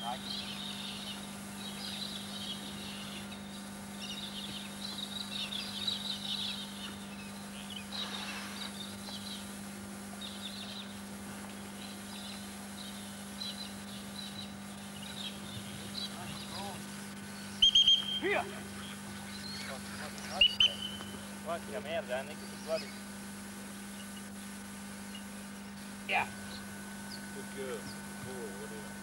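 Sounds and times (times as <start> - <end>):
birds chirping and calling: 0.0 - 9.5, 10.2 - 11.0, 11.6 - 23.1
steady low hum: 0.0 - 29.0.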